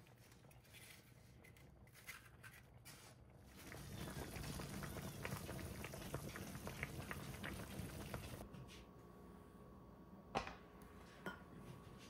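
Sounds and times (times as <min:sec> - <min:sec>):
broth bubbling at a boil: 0:03.3 - 0:08.4.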